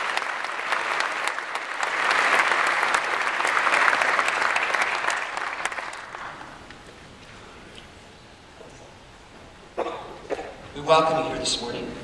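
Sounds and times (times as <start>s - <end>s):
congregation applauding: 0.0s - 6.9s.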